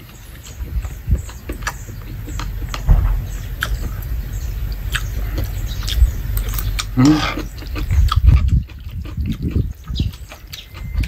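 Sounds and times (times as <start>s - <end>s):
person chewing and slurping noodles: 4.9s - 11.0s
wet mouth noises: 5.9s - 10.9s.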